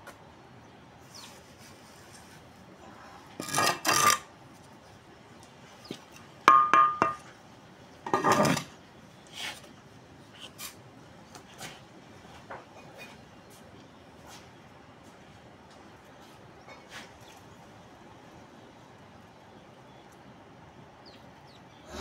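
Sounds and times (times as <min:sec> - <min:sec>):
trowel scraping wet mortar: 0:03.4 - 0:04.3
metal clink: 0:06.5 - 0:07.3.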